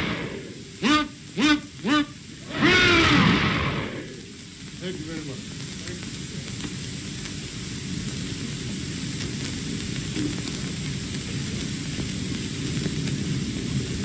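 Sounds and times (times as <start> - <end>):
muffled crew cheering: 0.0 - 4.5
film soundtrack hiss and crackle: 0.0 - 14.0.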